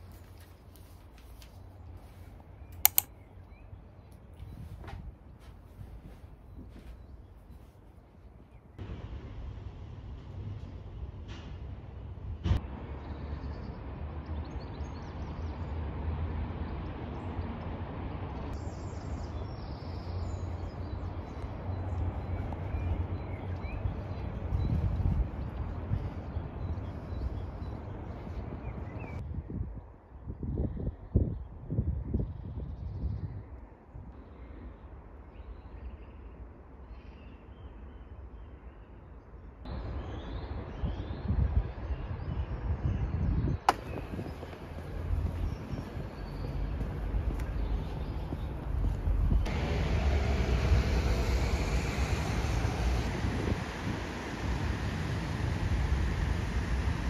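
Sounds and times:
wind rumble on microphone: 10.2 - 36.1, 39.7 - 57.0
steady rushing background: 43.7 - 57.0.

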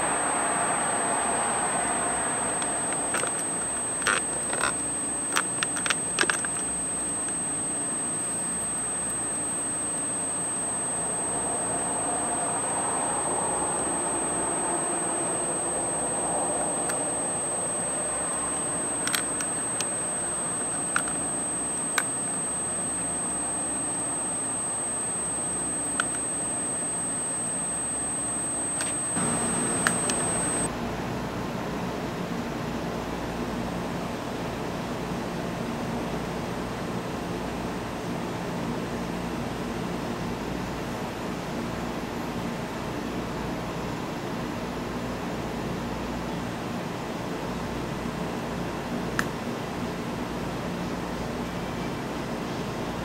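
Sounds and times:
high-pitched electronic whine: 0.0 - 30.7
sharp clicks: 2.5 - 11.2, 16.6 - 30.7.

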